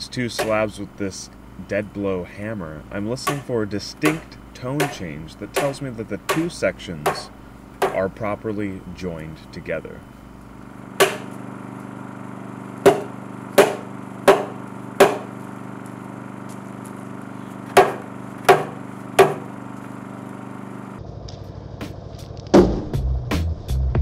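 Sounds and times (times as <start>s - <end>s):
hammer knocking on wood: 3.2s - 4.2s, 4.8s - 8.0s, 11.0s - 11.3s, 12.8s - 15.4s, 17.7s - 19.5s.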